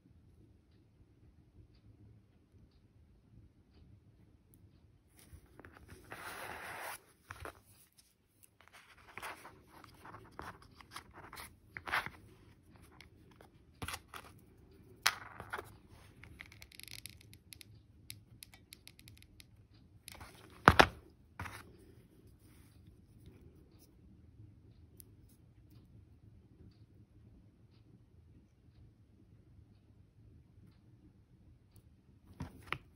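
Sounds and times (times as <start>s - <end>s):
rustling: 5.1s - 16.4s
small clicks taps and scrapes: 5.1s - 23.9s, 31.7s - 32.9s.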